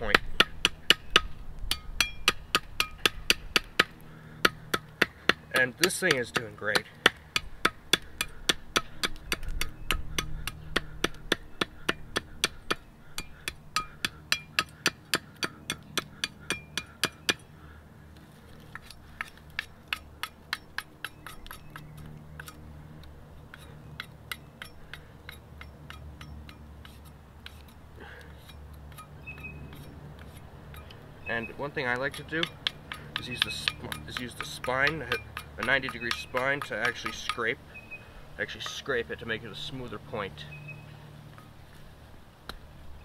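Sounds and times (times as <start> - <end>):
knife chopping wooden stick: 0.0 - 17.4, 23.5 - 30.9, 31.6 - 37.5.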